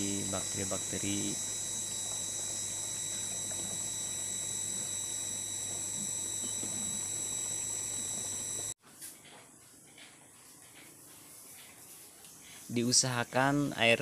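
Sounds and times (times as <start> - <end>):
low hum: 0.0 - 8.8
water running into plastic tank: 0.2 - 8.7.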